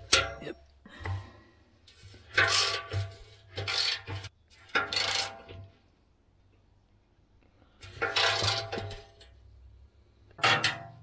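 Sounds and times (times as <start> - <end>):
metal scraping on mixer drum: 1.9 - 5.5, 7.8 - 9.2.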